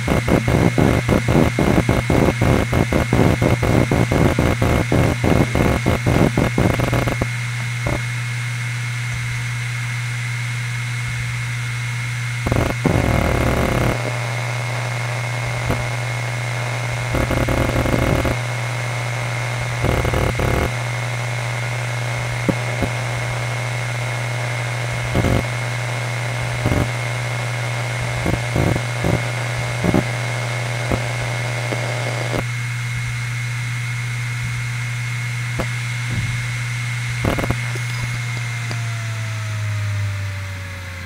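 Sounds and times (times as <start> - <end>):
hard drive seek clicks: 0.0 - 8.1, 12.4 - 18.6, 19.7 - 21.1, 22.4 - 23.6, 24.4 - 25.6, 26.6 - 27.1, 28.0 - 32.5, 35.5 - 39.2
hard drive spinning hum: 0.0 - 41.0.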